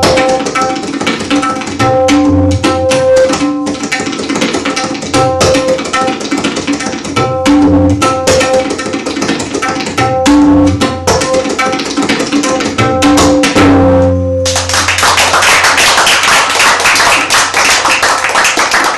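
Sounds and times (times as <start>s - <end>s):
tabla drumming: 0.0s - 18.9s
audience applause: 14.5s - 18.9s.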